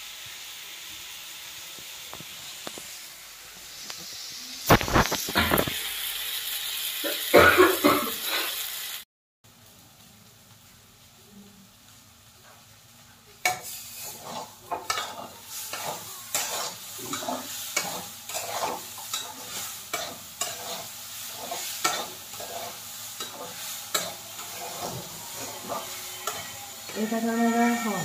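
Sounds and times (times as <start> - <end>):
spatula scraping a pan: 13.5 - 28.0.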